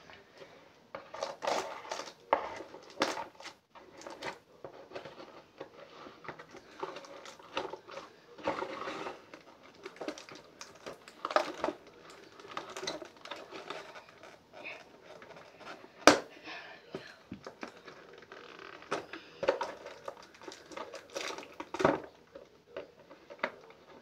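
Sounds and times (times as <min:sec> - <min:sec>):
cardboard box rustling and scraping: 0:01.1 - 0:15.9.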